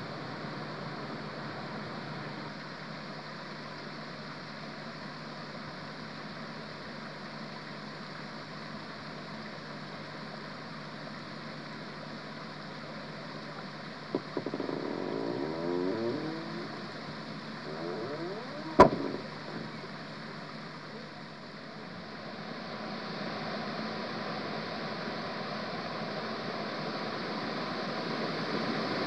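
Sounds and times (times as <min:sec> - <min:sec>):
stream rushing: 0:14.1 - 0:20.7.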